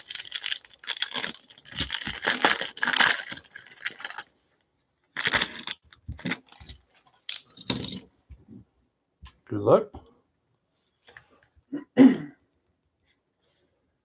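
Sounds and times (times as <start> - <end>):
plastic wrapper tearing and crinkling: 0.0 - 4.3, 5.1 - 8.0
wrapper clicks: 0.0 - 4.3, 5.2 - 8.0.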